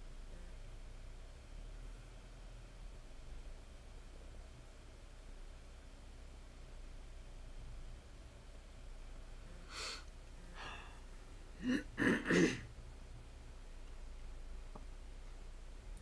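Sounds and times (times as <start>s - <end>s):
breathy sound: 9.6s - 12.6s
person coughing: 11.6s - 12.7s.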